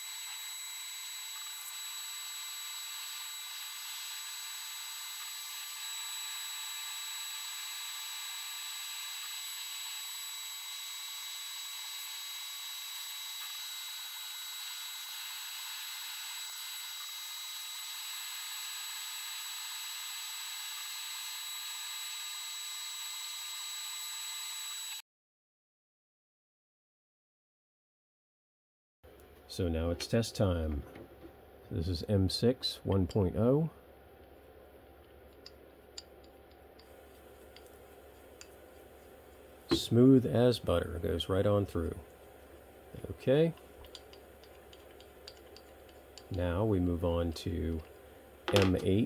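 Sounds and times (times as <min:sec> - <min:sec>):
router spindle whine: 0:00.0 - 0:25.0.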